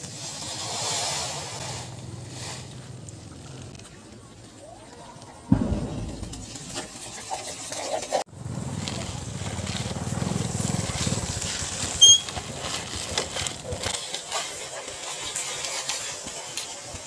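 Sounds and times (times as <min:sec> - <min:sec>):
gravel crunching under toy wheels: 0:00.0 - 0:05.5, 0:07.8 - 0:17.0
high chirp or squeak: 0:12.0 - 0:12.3.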